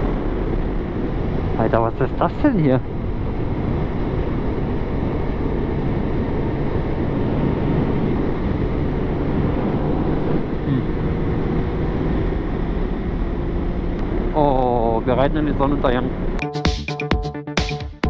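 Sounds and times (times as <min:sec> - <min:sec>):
wind noise on microphone: 0:00.0 - 0:14.4.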